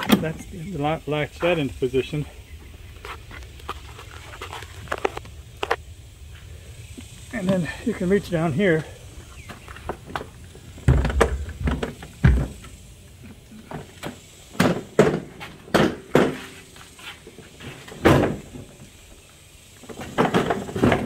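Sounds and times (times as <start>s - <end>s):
lawn mower knocking and clunking: 19.8s - 21.0s.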